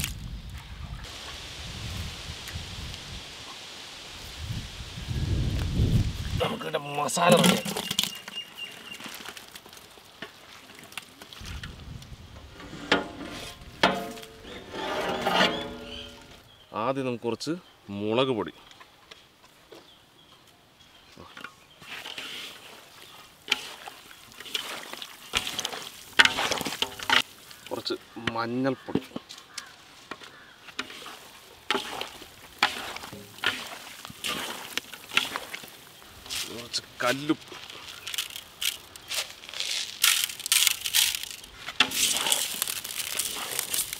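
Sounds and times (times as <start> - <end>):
hands squishing wet fish: 7.4 - 11.6, 21.8 - 28.1, 29.4 - 43.9
raw fish sliding into metal pot: 12.4 - 16.4, 23.5 - 27.7, 30.8 - 35.8, 41.8 - 43.9.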